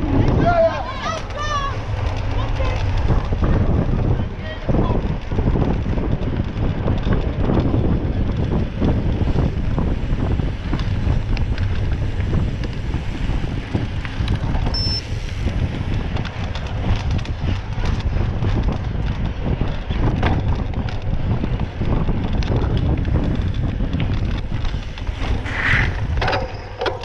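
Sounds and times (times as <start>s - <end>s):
wind buffeting microphone: 0.0s - 27.0s
short high beep: 14.7s - 15.0s
clicks and knocks: 26.2s - 27.0s.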